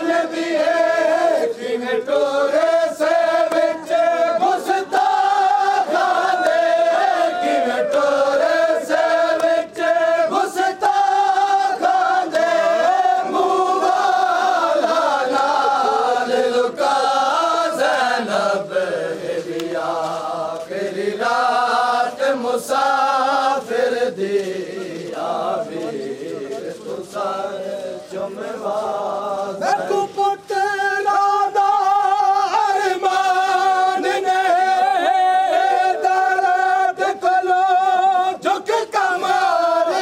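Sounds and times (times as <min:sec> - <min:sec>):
men chanting a lament in unison: 0:00.0 - 0:40.0
hands slapping chests: 0:03.4 - 0:03.8, 0:09.3 - 0:09.9, 0:14.8 - 0:15.7, 0:19.4 - 0:20.7.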